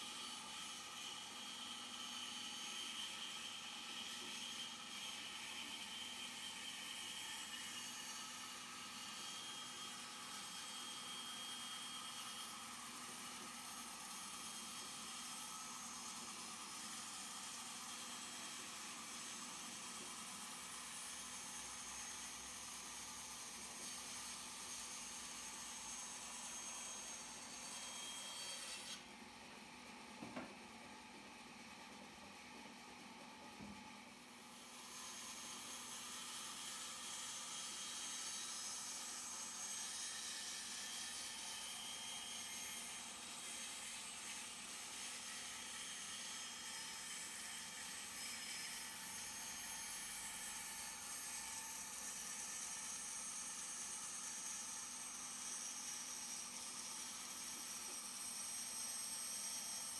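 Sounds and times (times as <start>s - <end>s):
bandsaw cutting wood: 0.0s - 29.1s
bandsaw blade cutting wood: 19.7s - 29.1s.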